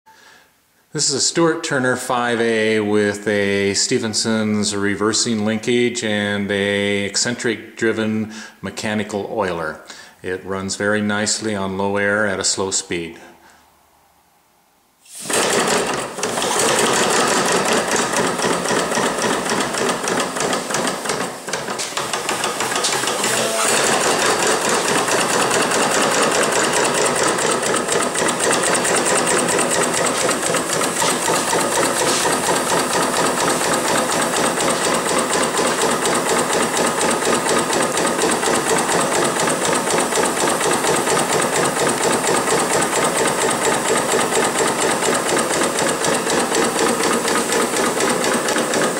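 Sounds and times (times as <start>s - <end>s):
model steam engine puffing: 15.1s - 48.9s.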